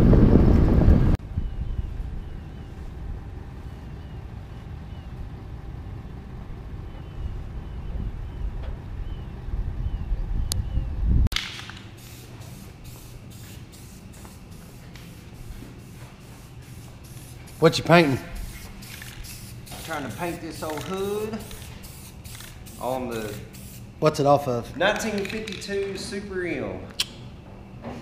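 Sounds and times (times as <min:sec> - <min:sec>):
wind buffeting microphone: 0:00.0 - 0:03.5, 0:06.4 - 0:11.4
low vehicle rumble: 0:00.0 - 0:11.3
paint spray hisses: 0:11.4 - 0:24.3.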